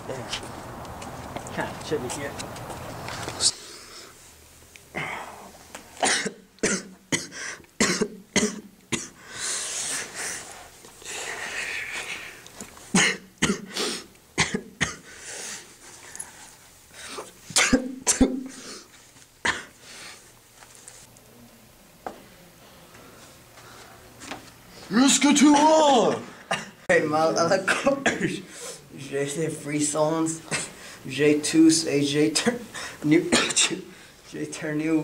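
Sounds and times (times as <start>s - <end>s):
boy coughing: 6.0s - 9.2s, 13.0s - 13.8s, 14.4s - 15.1s, 17.6s - 18.7s, 26.5s - 26.8s, 27.6s - 28.4s, 33.3s - 33.8s
breathing: 9.2s - 12.4s, 22.6s - 24.1s, 30.7s - 31.1s, 32.7s - 33.0s, 33.9s - 34.3s.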